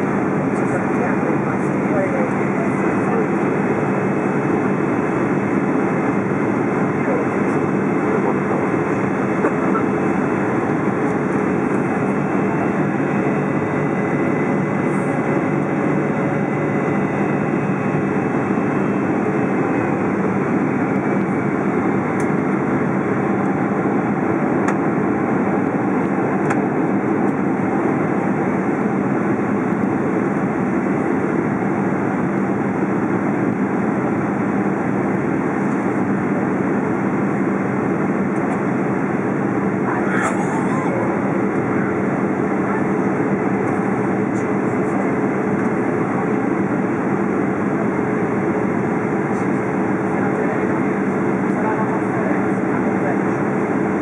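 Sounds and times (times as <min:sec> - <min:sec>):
jet engines droning: 0:00.0 - 0:54.0.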